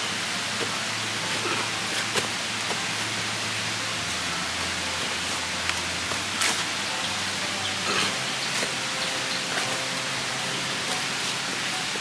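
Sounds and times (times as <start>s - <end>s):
forest background hiss: 0.0s - 12.0s
footsteps on leaf litter: 4.4s - 10.2s.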